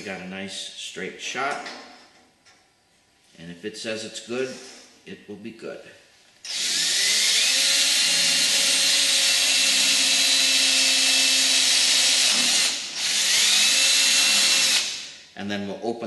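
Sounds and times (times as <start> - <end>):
cordless drill drilling into metal: 6.4 - 15.1.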